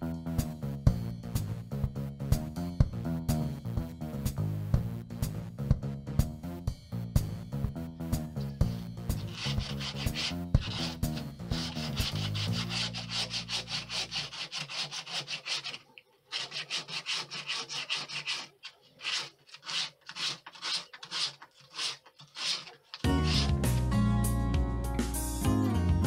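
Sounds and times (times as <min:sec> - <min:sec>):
sanding wood by hand: 0:09.2 - 0:23.8.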